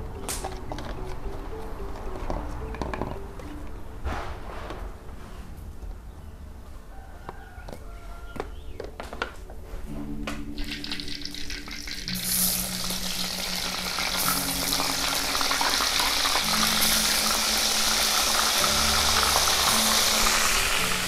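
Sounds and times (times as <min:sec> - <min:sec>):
simple background melody: 0:00.0 - 0:21.0
food sizzling in hot oil: 0:10.6 - 0:21.0.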